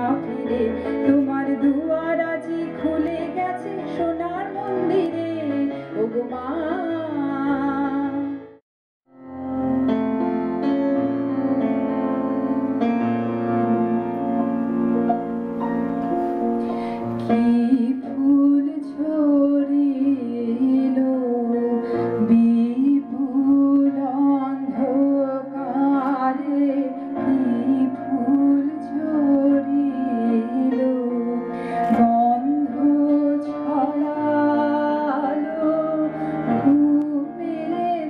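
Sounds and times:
woman singing: 0.0s - 8.5s, 17.2s - 38.0s
electronic keyboard chords: 9.1s - 38.0s.

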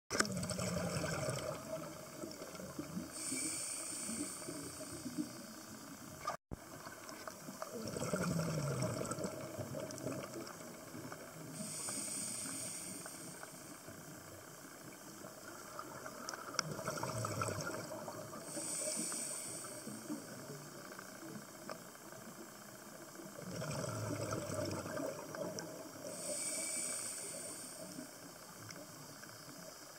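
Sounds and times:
bubbling exhalations underwater: 0.1s - 3.3s, 7.7s - 10.5s, 16.6s - 18.6s, 23.4s - 26.3s
regulator hissing inhalations: 3.0s - 6.0s, 11.5s - 14.0s, 18.4s - 20.6s, 26.0s - 28.4s.

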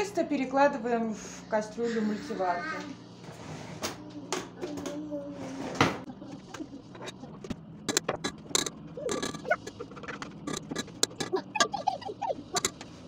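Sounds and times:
scraping: 5.4s - 13.0s
short squeaks: 6.4s - 13.0s.

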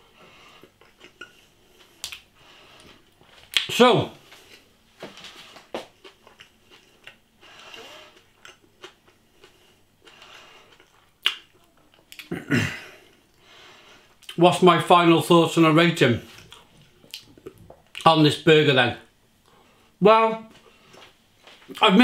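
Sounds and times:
person chewing: 0.5s - 3.7s, 5.5s - 12.4s, 16.3s - 18.1s.

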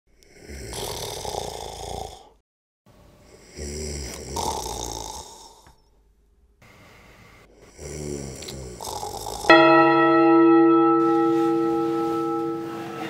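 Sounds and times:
person snoring: 0.1s - 2.4s, 3.3s - 5.8s, 7.5s - 9.5s.

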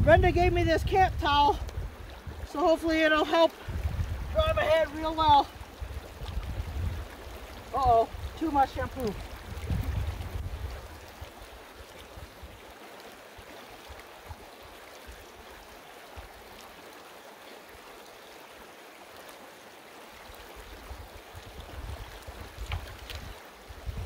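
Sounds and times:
low rumbling: 0.0s - 2.6s
stream running over rocks: 0.0s - 24.0s
water splashes: 0.0s - 24.0s.

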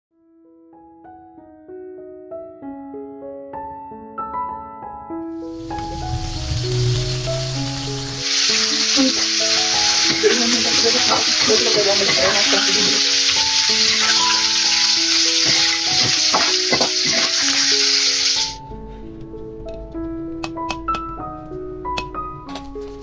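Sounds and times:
background music: 0.5s - 23.0s
hot oil sizzling in a wok: 5.4s - 18.6s
metal spatula scraping a pan: 9.4s - 17.7s.

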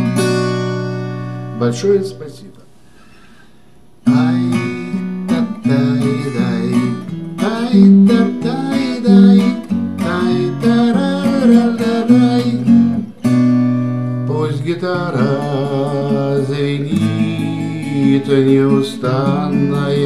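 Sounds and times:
acoustic guitar strummed and picked: 0.0s - 20.0s.

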